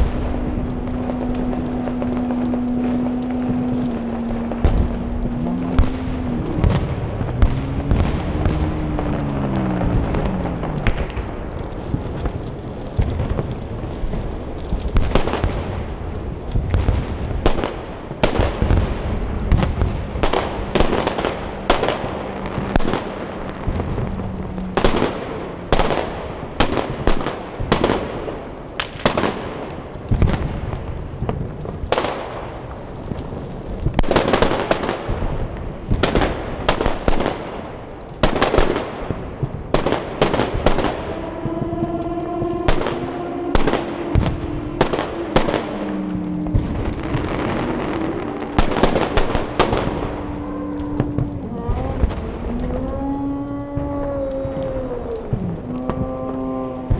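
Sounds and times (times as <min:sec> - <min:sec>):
steady pitched tone: 0:00.0 - 0:11.4, 0:40.5 - 0:52.6
foliage crackling and popping: 0:00.0 - 0:56.9
rush of flames: 0:00.0 - 0:56.9.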